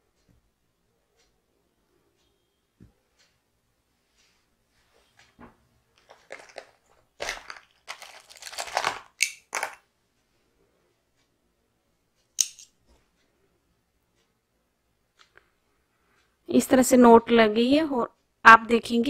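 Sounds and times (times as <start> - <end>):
yarn rustling and scraping: 6.0 - 9.8.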